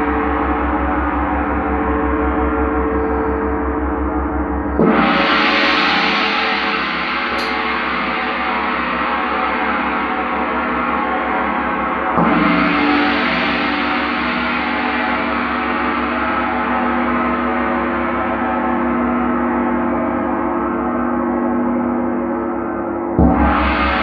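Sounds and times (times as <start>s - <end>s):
gong ringing: 0.0s - 18.3s.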